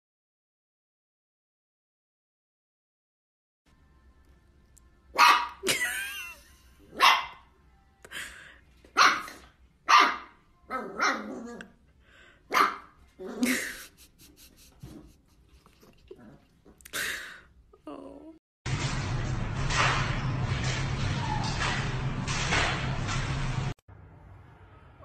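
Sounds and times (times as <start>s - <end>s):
puppy barking: 5.1s - 5.8s, 6.9s - 7.5s, 8.9s - 11.7s, 12.5s - 13.6s.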